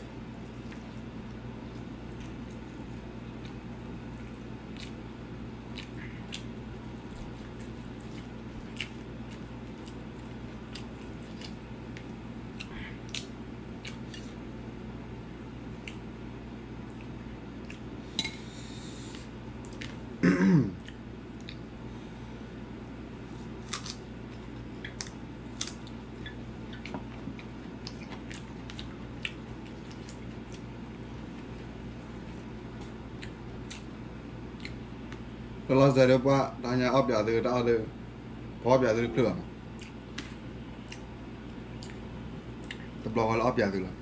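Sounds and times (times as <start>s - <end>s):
steady hum: 0.0s - 44.0s
mouth clicks and chewing: 4.7s - 5.0s, 5.7s - 6.5s, 7.2s - 14.4s, 15.8s - 16.1s, 16.9s - 17.9s, 20.8s - 21.7s, 23.7s - 30.7s, 32.8s - 33.9s, 34.5s - 35.2s, 39.7s - 43.0s.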